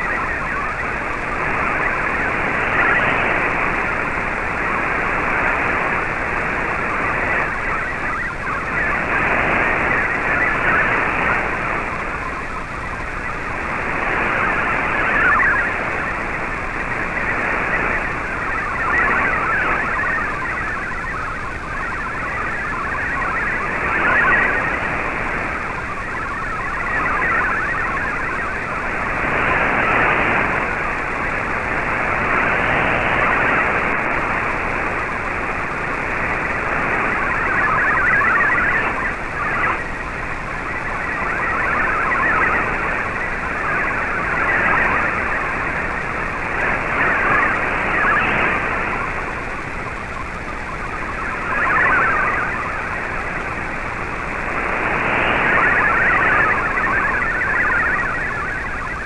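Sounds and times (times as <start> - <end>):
static hiss: 0.0 - 59.0
warbling digital data tones: 0.0 - 59.0.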